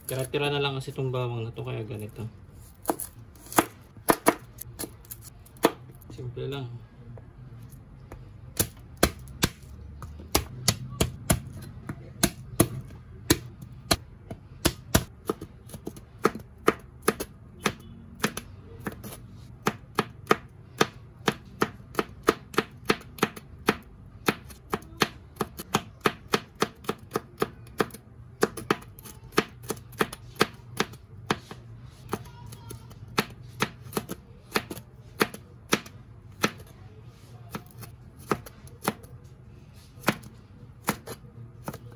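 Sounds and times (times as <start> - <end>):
knife chopping on cutting board: 2.8 - 5.0, 8.6 - 32.3, 37.5 - 39.1, 40.0 - 41.9.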